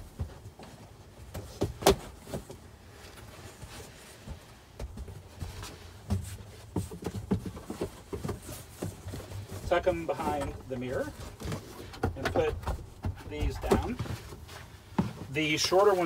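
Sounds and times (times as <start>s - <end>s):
knocks and taps of a shade: 0.0s - 16.0s.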